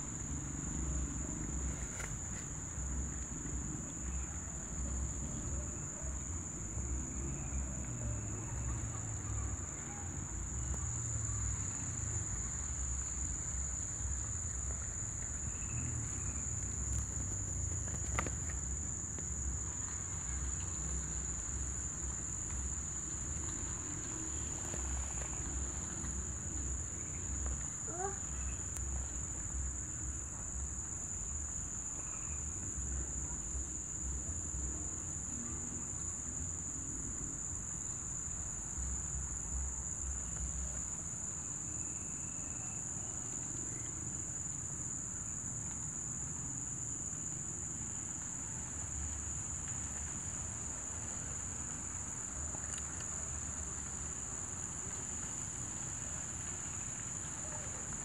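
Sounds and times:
high-pitched insect trill: 7.0 - 58.0.

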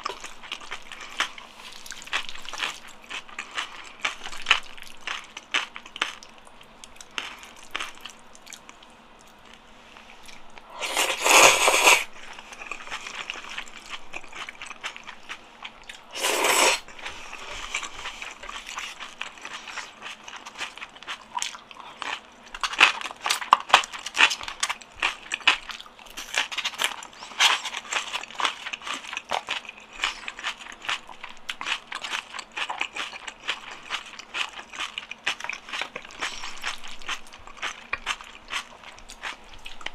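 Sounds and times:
chewing with wet clicks: 0.0 - 10.7, 12.2 - 16.1, 16.8 - 39.9
slurping noodles: 10.7 - 12.1, 16.1 - 19.0.

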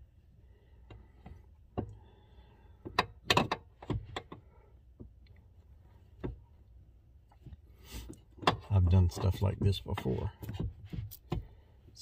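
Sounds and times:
steering shaft clicks and knocks: 0.8 - 2.1, 2.7 - 12.0.

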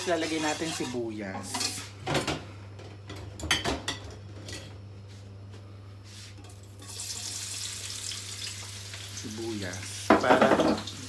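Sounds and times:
utensils clinking on cookware: 0.0 - 2.4, 3.1 - 4.8, 10.1 - 10.9
oil sizzling in a wok: 6.5 - 11.0.

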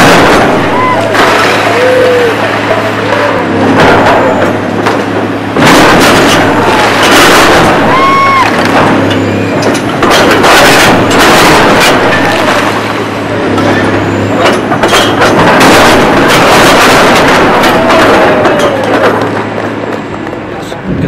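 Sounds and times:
concrete crashing and grinding: 0.0 - 20.2
diesel engine running: 0.0 - 21.0
short squeals: 0.6 - 3.6, 7.6 - 9.8.

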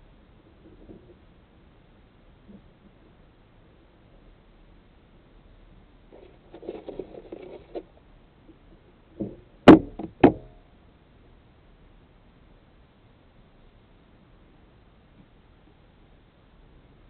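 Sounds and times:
rustling and handling noise: 6.1 - 8.0
sharp knocks: 9.2 - 10.6.

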